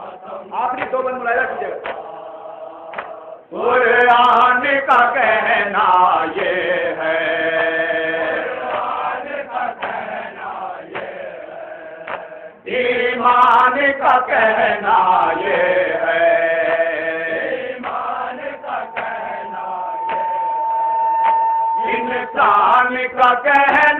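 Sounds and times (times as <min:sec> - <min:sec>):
man chanting a lament over loudspeaker: 0:00.0 - 0:01.9, 0:21.8 - 0:23.9.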